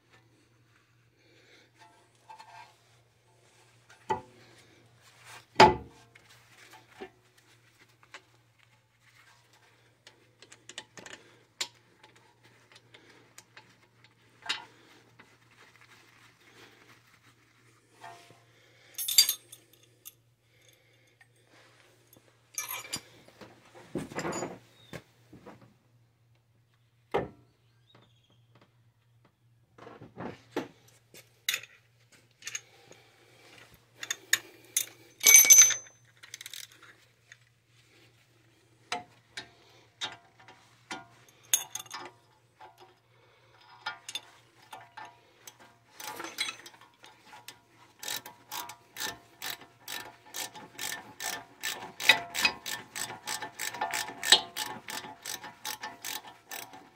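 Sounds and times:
metal tools clinking: 18.9s - 21.2s, 22.1s - 23.2s, 24.1s - 24.6s, 34.0s - 36.9s, 40.0s - 42.9s, 43.6s - 56.9s
ratchet wrench clicking: 35.2s - 36.8s, 48.0s - 56.9s.

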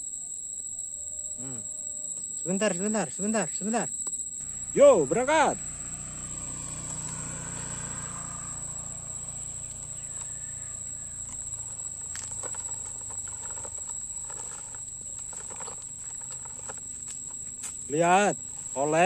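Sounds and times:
crickets trilling: 0.0s - 19.0s
clicks and rustles of leaves: 9.3s - 19.0s
toy truck scraping over leaves: 9.9s - 18.8s.

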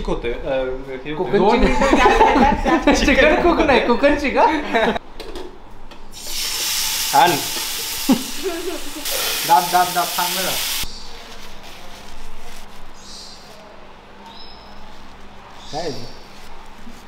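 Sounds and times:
chicken sizzling in pan: 6.1s - 10.9s.

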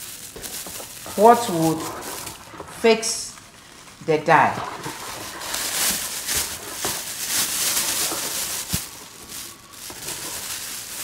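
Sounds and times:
liquid swishing in basin: 0.8s - 9.4s.

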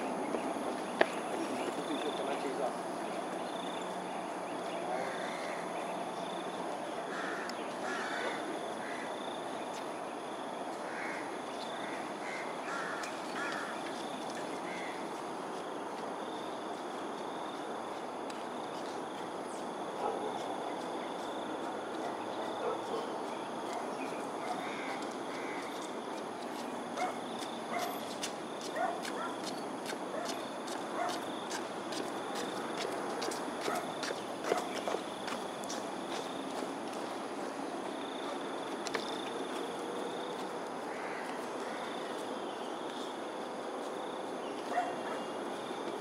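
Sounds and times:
steady background hiss: 0.0s - 46.0s
crows cawing: 4.9s - 5.6s, 7.0s - 9.4s, 10.8s - 14.0s, 14.6s - 15.1s, 24.4s - 26.0s, 40.9s - 42.2s.

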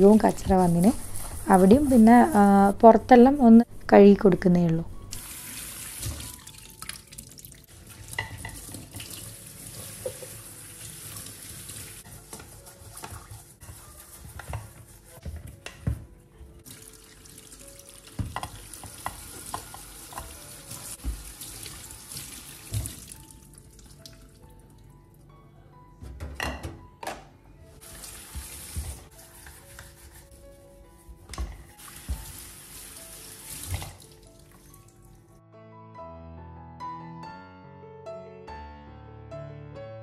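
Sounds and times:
tap water running into sink: 5.1s - 14.6s, 16.6s - 24.2s, 27.8s - 30.1s, 31.3s - 34.7s.

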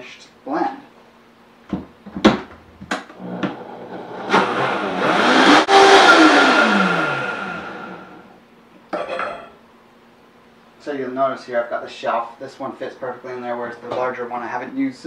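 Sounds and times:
blender motor running: 3.2s - 8.3s.

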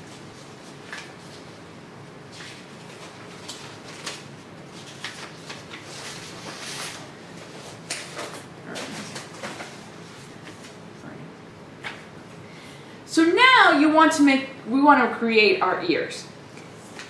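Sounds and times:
faint steady hum: 0.0s - 17.0s
paper rustling: 0.1s - 1.6s, 2.3s - 10.8s, 16.6s - 17.0s.

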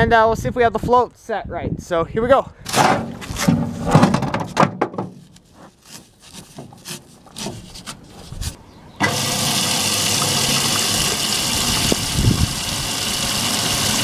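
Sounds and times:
water hissing through valve: 9.0s - 14.0s.

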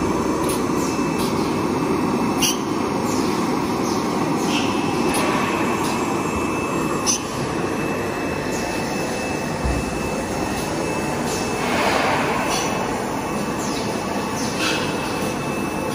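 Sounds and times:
faint high whine: 0.0s - 15.9s
roar of air blowers: 10.6s - 13.6s.

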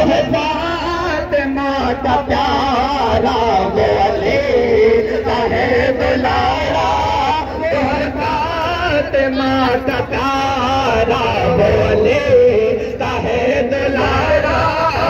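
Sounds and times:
men chanting a lament: 0.0s - 15.0s.

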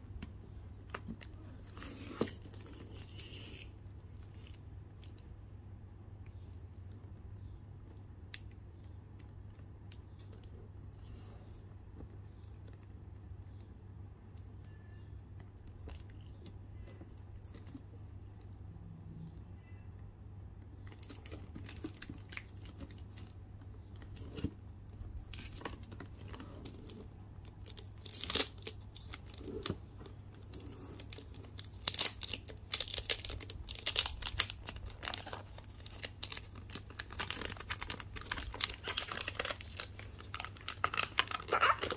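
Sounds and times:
plastic wrapping crinkling: 20.8s - 24.5s, 25.2s - 41.9s.

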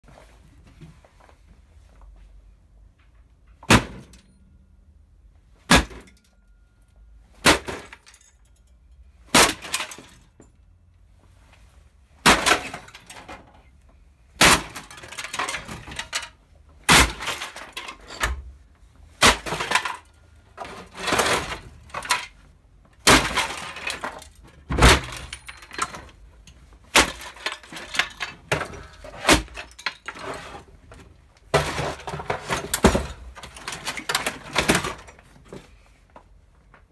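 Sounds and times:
broken pieces clattering: 7.5s - 10.4s, 14.4s - 18.4s, 19.2s - 22.4s, 23.0s - 30.7s, 31.5s - 35.3s.

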